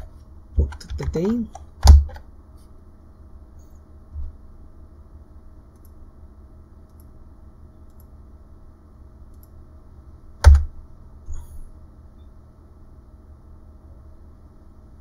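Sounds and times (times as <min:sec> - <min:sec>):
low steady hum: 0:00.0 - 0:15.0
computer mouse clicks: 0:05.7 - 0:06.0, 0:06.8 - 0:07.1, 0:07.8 - 0:08.2, 0:09.3 - 0:09.6.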